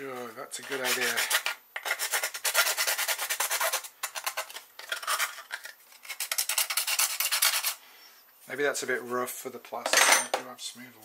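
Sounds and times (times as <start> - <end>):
hand file rasping on plastic: 0.6 - 7.8.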